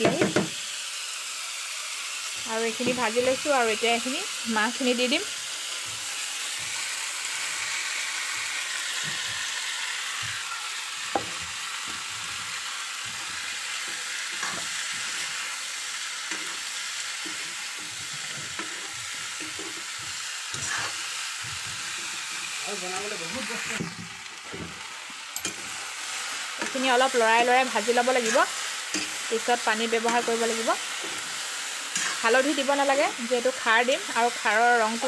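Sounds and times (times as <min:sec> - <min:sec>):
oil sizzling: 0:00.0 - 0:35.0
steel spoon scraping pan: 0:11.2 - 0:15.5, 0:16.2 - 0:22.5, 0:28.2 - 0:29.3, 0:31.9 - 0:32.4.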